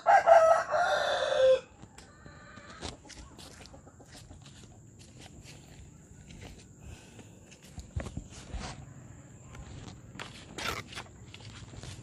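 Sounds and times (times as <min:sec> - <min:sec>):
rooster crowing: 0:00.0 - 0:02.9.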